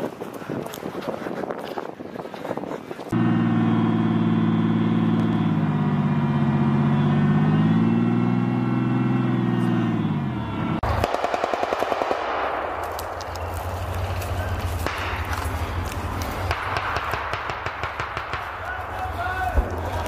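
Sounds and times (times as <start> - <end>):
running footsteps: 0.0 - 3.2, 12.7 - 20.0
armoured vehicle engine running: 3.0 - 11.1, 12.9 - 20.0.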